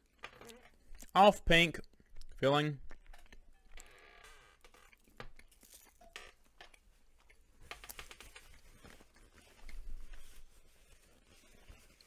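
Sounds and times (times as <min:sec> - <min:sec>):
faint chewing: 0:00.0 - 0:04.0, 0:04.6 - 0:12.0.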